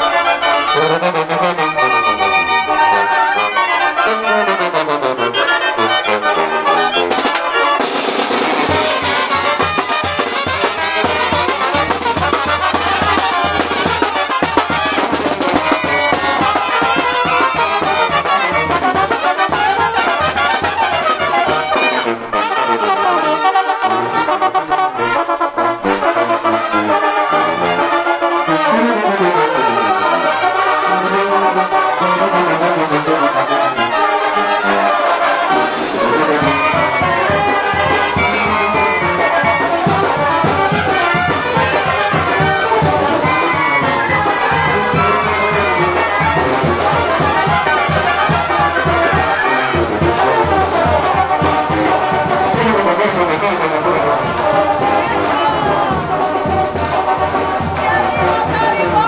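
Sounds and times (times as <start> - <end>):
trumpets and trombones playing: 0.0 - 59.0
steady drumbeat: 7.1 - 21.8, 35.5 - 59.0.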